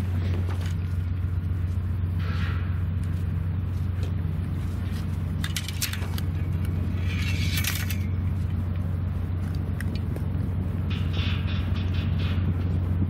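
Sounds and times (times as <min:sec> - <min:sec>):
low engine-like hum: 0:00.0 - 0:13.0.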